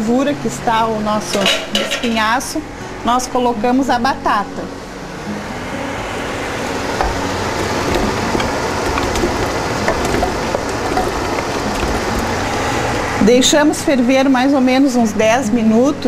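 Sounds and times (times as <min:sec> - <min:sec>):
broth boiling in a stockpot: 0:06.6 - 0:13.4
potatoes plopping into liquid: 0:07.0 - 0:12.6.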